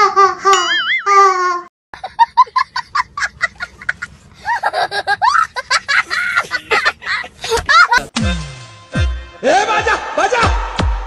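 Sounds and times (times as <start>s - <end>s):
boy laughing hysterically: 0.0s - 8.1s.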